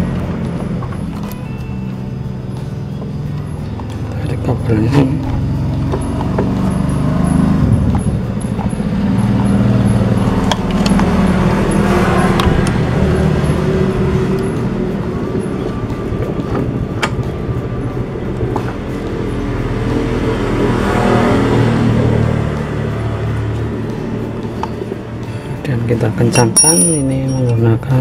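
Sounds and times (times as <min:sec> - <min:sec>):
motor engine running: 0:00.0 - 0:25.6.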